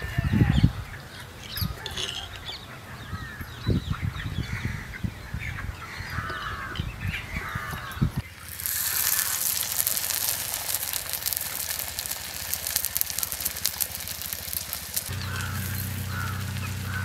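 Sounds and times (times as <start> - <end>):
birds chirping and honking: 0.4 - 8.2, 15.1 - 17.0.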